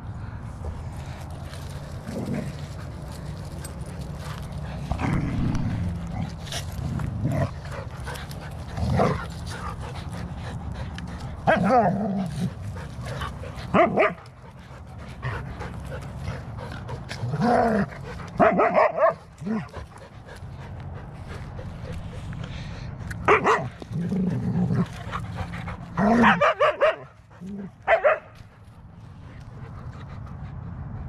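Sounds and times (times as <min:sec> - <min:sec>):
dogs barking and yipping: 0:05.7 - 0:22.3, 0:23.2 - 0:24.0, 0:24.8 - 0:28.7.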